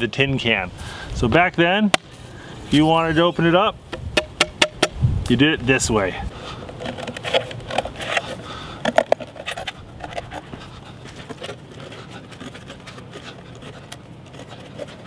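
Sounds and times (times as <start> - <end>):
knife blade scraping tin can: 6.7 - 10.5, 11.2 - 15.0.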